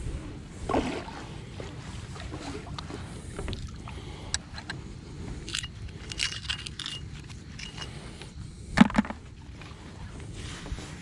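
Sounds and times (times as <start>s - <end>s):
metallic clicks and scrapes: 5.4s - 8.0s.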